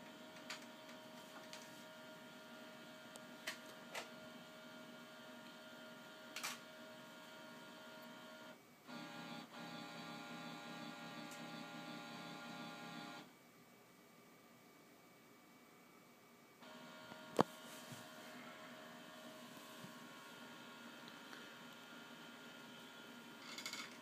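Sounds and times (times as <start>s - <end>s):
printer scanner motor running: 0.0s - 13.3s, 16.6s - 21.0s.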